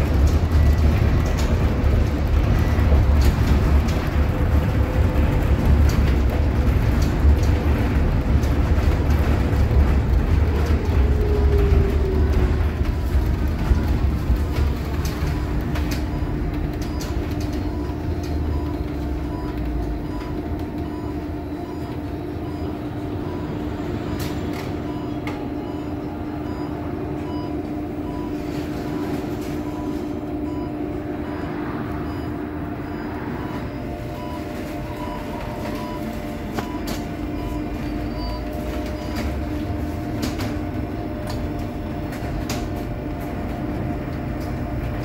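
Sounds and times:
bus road and tyre rumble: 0.0s - 45.0s
faint repeating beep: 16.0s - 28.4s, 29.0s - 39.2s.

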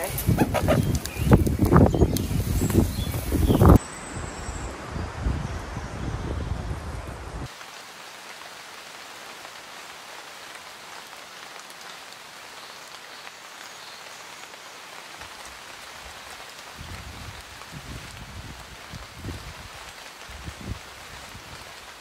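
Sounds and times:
pouring rain: 0.0s - 22.0s.

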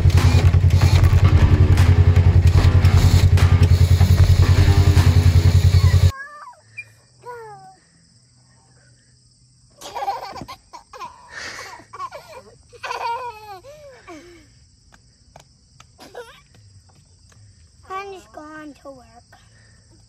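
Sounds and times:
low pulsing drone: 0.0s - 6.1s
children squealing and laughing: 5.7s - 7.8s, 9.8s - 14.2s.

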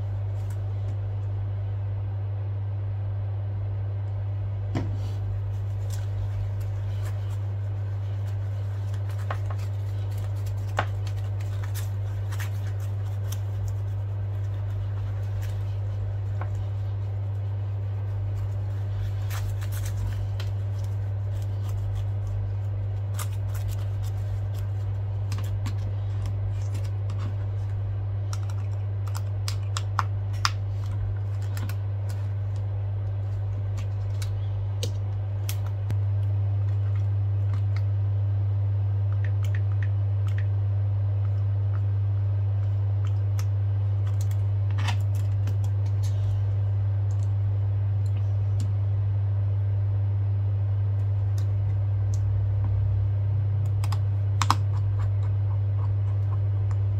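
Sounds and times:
low hum: 0.0s - 56.9s
cloth wiping screen: 4.8s - 28.4s.

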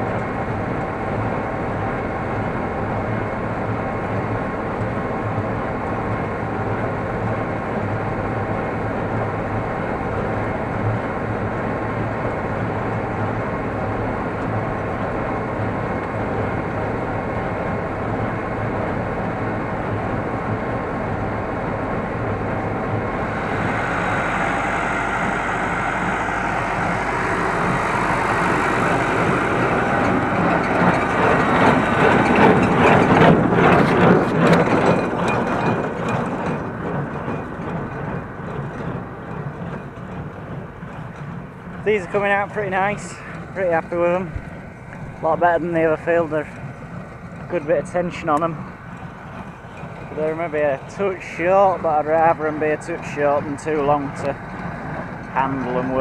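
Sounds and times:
baler working: 0.0s - 56.0s
tractor engine running: 0.0s - 56.0s.

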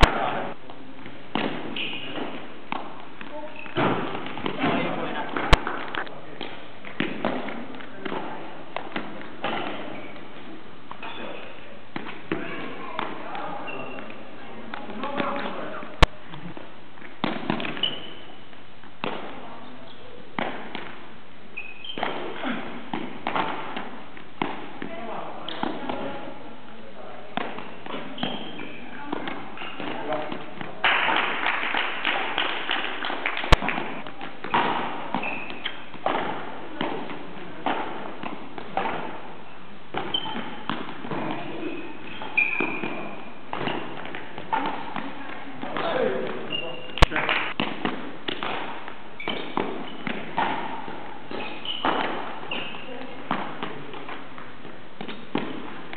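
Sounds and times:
shoe squeaks: 1.7s - 2.3s, 3.4s - 3.8s, 9.8s - 10.3s, 10.9s - 11.6s, 12.4s - 14.3s, 17.7s - 18.5s, 21.5s - 22.6s, 27.6s - 30.0s, 35.0s - 35.9s, 39.5s - 40.8s, 41.4s - 44.0s, 45.8s - 47.2s, 49.2s - 50.1s, 51.3s - 53.1s.

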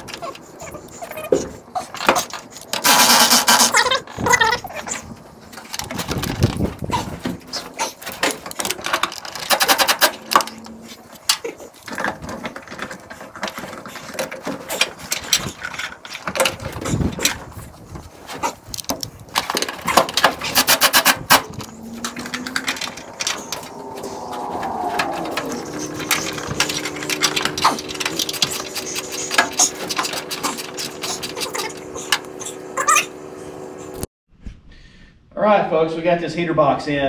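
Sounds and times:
hand tool clicks and rattles: 7.9s - 17.4s, 18.6s - 23.7s, 25.7s - 32.3s
rapid clicking bursts: 9.4s - 10.4s, 20.4s - 23.2s.

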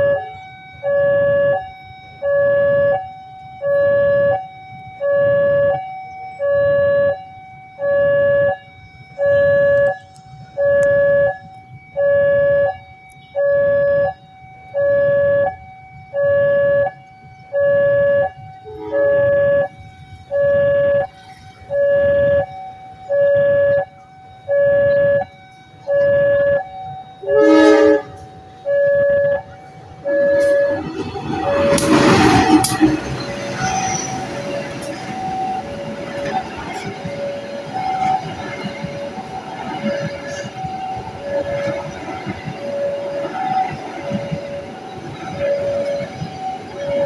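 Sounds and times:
level crossing warning bell: 0.0s - 47.0s
short train horn note: 27.2s - 28.2s.

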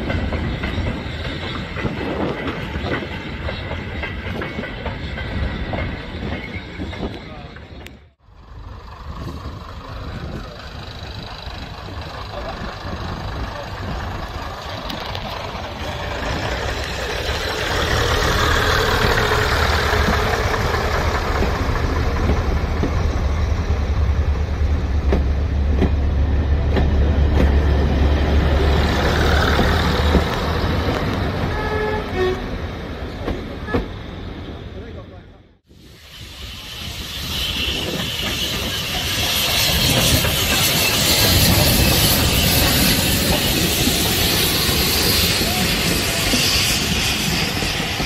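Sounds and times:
diesel train passing rumble: 0.0s - 48.0s.

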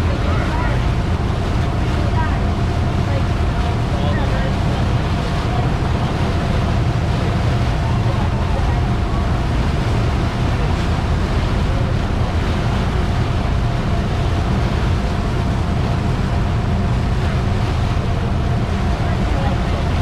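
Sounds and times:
motorboat engine droning: 0.0s - 20.0s
wind on microphone: 0.0s - 20.0s.

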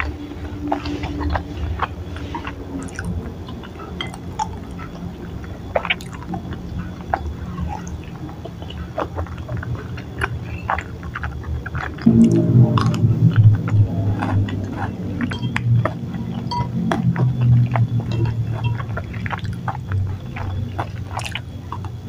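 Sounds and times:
chewing with wet mouth sounds: 0.0s - 22.0s
spoon and fork on ceramic bowl: 14.0s - 17.1s, 17.7s - 19.6s.

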